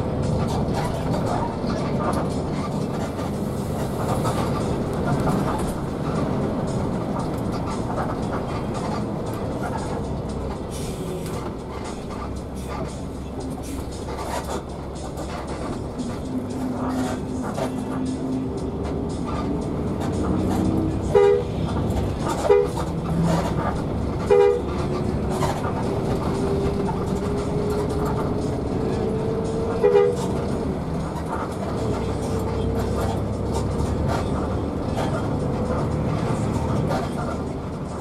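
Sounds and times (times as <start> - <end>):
bus engine accelerating: 0.0 - 38.0
bus horn toots: 20.3 - 23.5, 24.1 - 25.4, 27.3 - 30.6.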